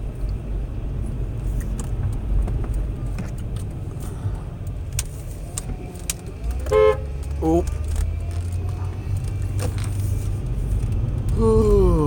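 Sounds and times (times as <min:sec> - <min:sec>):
car rumble inside cabin: 0:00.0 - 0:12.0.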